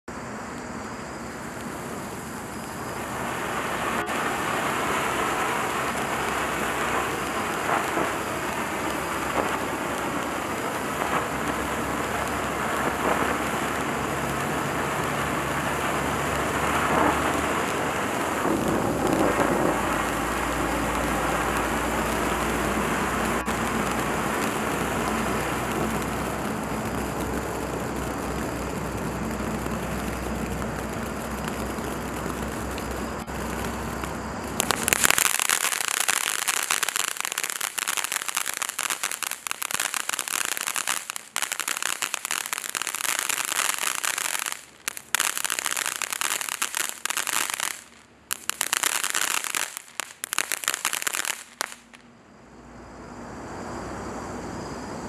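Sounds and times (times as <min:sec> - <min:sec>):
firework crackles: 0:00.0 - 0:52.2
firework spraying sparks hissing: 0:00.1 - 0:52.0.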